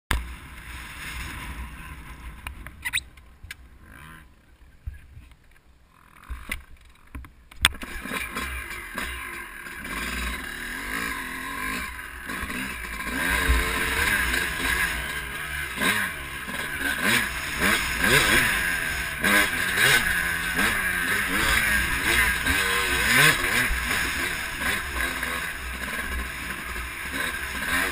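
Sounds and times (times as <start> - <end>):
motorcycle engine revving: 3.7 - 4.8, 7.6 - 27.9.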